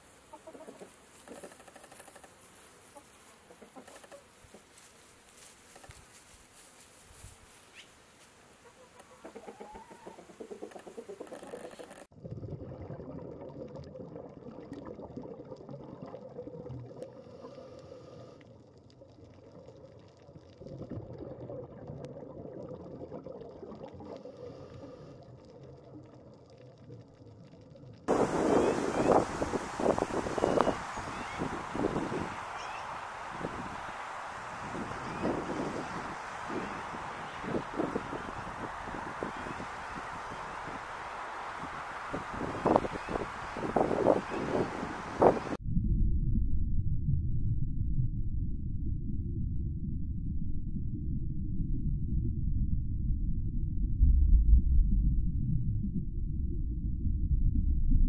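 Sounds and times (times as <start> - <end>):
chickens clucking: 0.3 - 4.8, 8.6 - 12.0, 28.1 - 45.6
muffled rumbling wash: 28.1 - 58.0.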